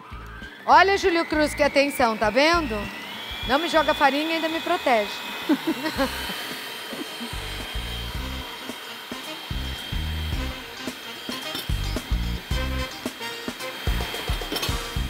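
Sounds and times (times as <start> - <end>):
music with deep bass: 0.0 - 4.0, 7.4 - 8.5, 9.5 - 11.0, 11.7 - 13.2, 13.8 - 15.0
stand mixer running: 0.0 - 15.0
thin whine: 0.0 - 15.0.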